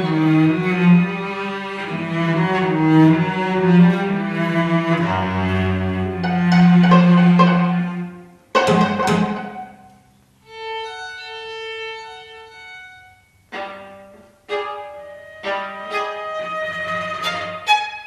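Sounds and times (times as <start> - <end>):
string trio playing chamber music: 0.0 - 18.0.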